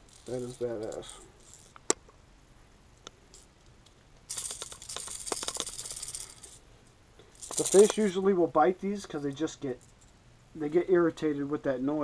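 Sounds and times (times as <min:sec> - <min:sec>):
fishing lure rattle: 0:00.0 - 0:02.0, 0:03.0 - 0:08.3, 0:09.0 - 0:10.2.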